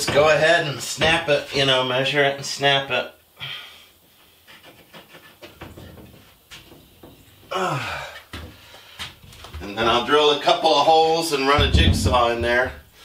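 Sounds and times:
man grunting: 0:07.5 - 0:08.2.

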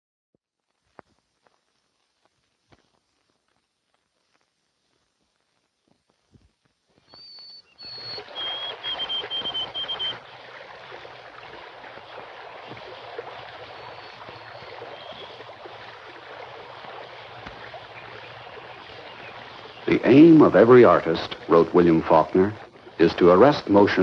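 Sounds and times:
bird calling in whistled notes: 0:07.0 - 0:10.5, 0:12.6 - 0:16.1, 0:16.9 - 0:21.2
flowing water rushing: 0:07.4 - 0:24.0.

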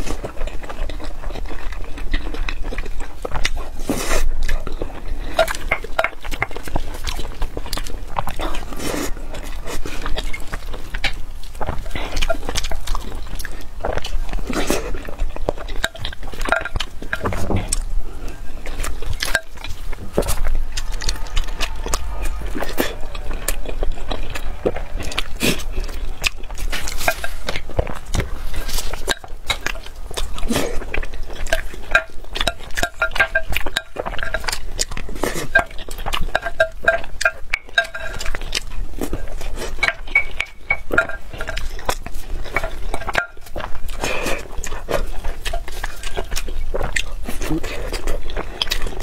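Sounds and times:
chewing and mouth sounds: 0:00.0 - 0:49.0
spoon clinking on glass bowl: 0:39.8 - 0:41.6.

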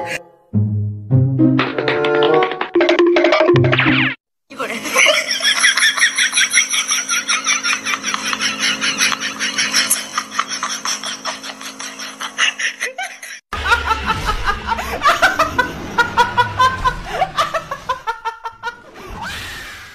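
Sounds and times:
person laughing: 0:04.7 - 0:18.9.

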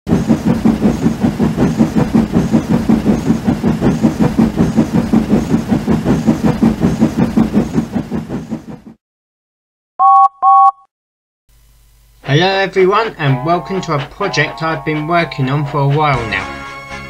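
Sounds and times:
steam locomotive chuffing: 0:00.1 - 0:09.0.

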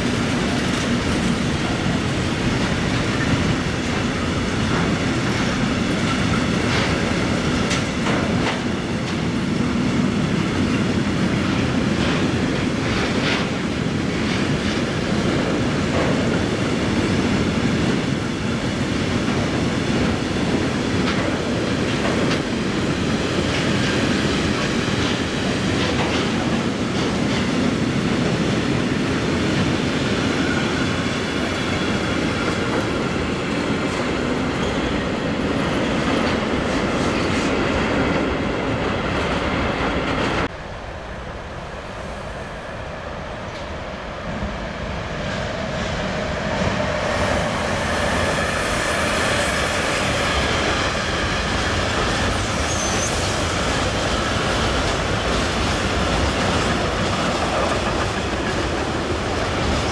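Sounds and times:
wheels clacking over rail joints: 0:00.0 - 0:17.2, 0:46.8 - 0:59.9
train wheels rumbling on rails: 0:00.0 - 0:59.9.

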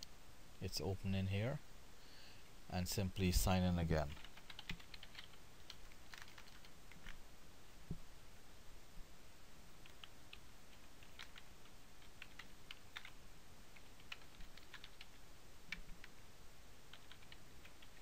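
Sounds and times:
keyboard typing clicks: 0:04.1 - 0:07.2.

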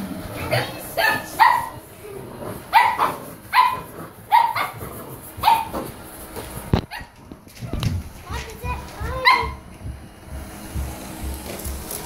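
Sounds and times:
stick vacuum: 0:00.0 - 0:12.0
puppy barking: 0:00.5 - 0:01.8, 0:02.7 - 0:05.9, 0:06.9 - 0:07.2, 0:09.1 - 0:09.6.

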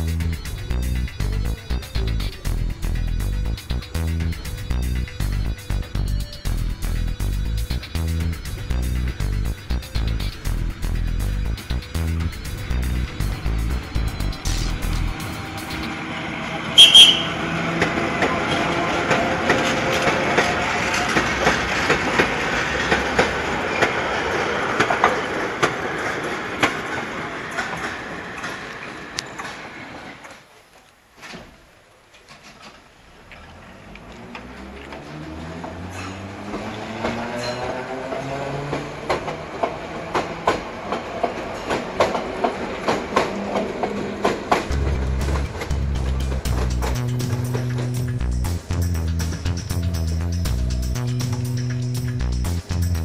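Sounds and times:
freight train rolling rumble: 0:00.0 - 0:30.5, 0:32.3 - 0:53.0
loud high-pitched tone: 0:16.7 - 0:17.6
wheels clicking over rail joints: 0:16.8 - 0:53.0.

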